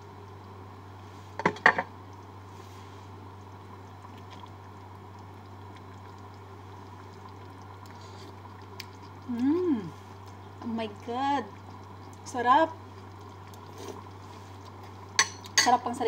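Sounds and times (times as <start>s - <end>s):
constant low hum: 0.0s - 16.0s
pan bubbling and hissing: 0.0s - 16.0s.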